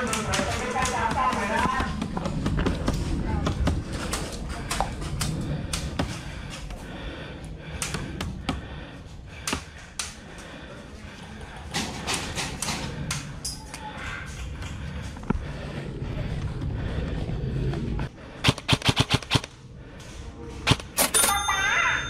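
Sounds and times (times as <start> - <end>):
steady low rumble: 0.0 - 20.6
airsoft guns firing: 18.4 - 19.6.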